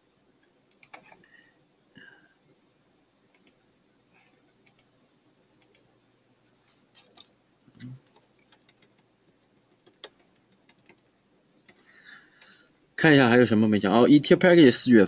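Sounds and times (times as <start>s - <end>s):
computer mouse clicks: 0.7s - 1.2s, 3.3s - 4.9s, 5.6s - 5.9s, 6.9s - 7.3s, 8.0s - 12.5s.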